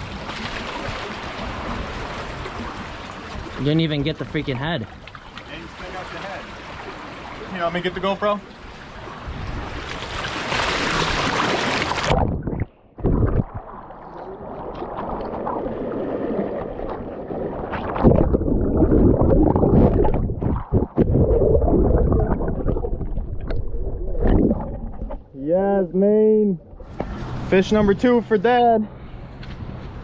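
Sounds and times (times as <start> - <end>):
sea water splashing: 0.0 - 25.4
muffled underwater gurgling: 16.6 - 25.4.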